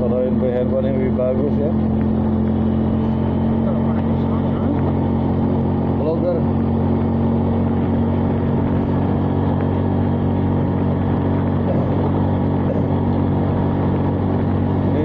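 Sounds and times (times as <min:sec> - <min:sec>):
motorcycle engine cruising: 0:00.0 - 0:15.0
road and wind noise: 0:00.0 - 0:15.0.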